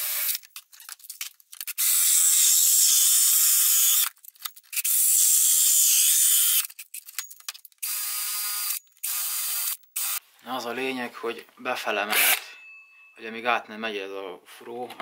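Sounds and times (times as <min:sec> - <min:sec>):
drill hole saw cutting plastic: 0:00.0 - 0:00.4, 0:01.6 - 0:06.8, 0:07.8 - 0:10.2, 0:12.1 - 0:12.5.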